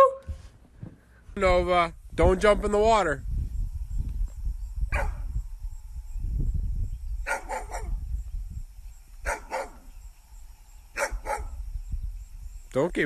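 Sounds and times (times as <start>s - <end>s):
low rumbling noise: 1.3s - 9.2s
dog barking: 4.9s - 5.2s, 7.2s - 8.0s, 9.2s - 9.9s, 11.0s - 11.6s.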